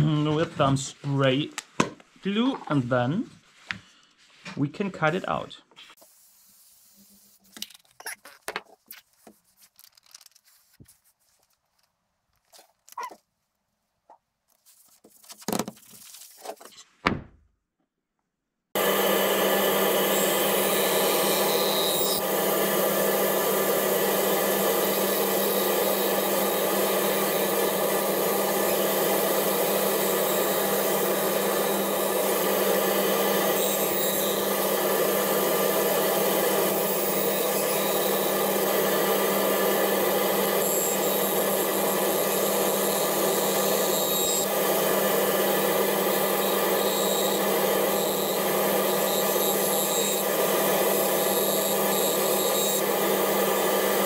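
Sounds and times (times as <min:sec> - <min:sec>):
bandsaw humming: 0:18.8 - 0:54.0.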